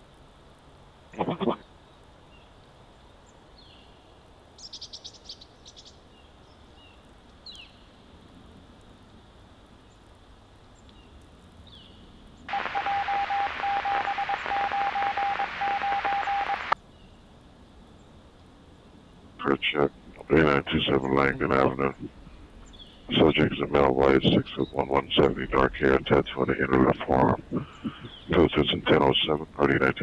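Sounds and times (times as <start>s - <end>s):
loud hissing radio static: 1.2s - 1.7s, 12.5s - 16.8s, 19.4s - 22.3s, 23.1s - 30.0s
faint radio chirps: 12.5s - 16.8s, 19.4s - 22.1s, 23.1s - 30.0s
steady beeping tone: 12.5s - 16.8s.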